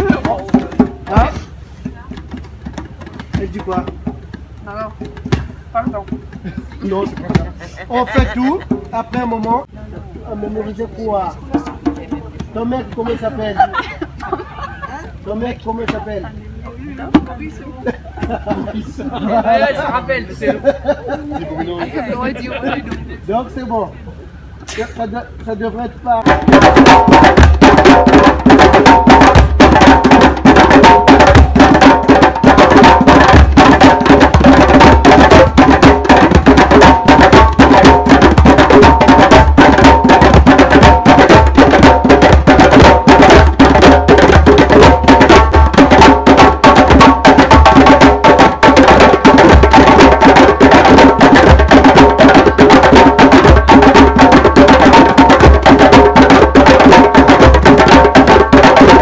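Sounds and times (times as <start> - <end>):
djembes played by hand: 0.0 - 14.4, 15.1 - 19.9, 26.2 - 59.0.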